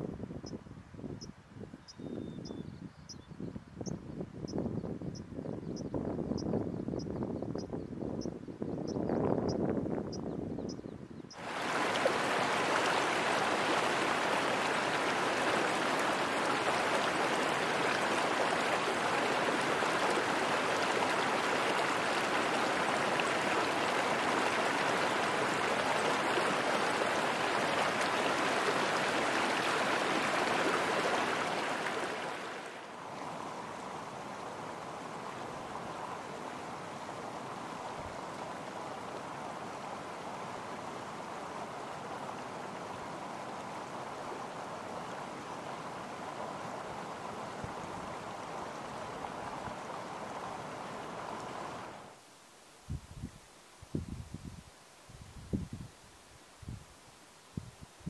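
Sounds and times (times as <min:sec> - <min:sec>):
stream rushing over rocks: 0:11.4 - 0:52.7.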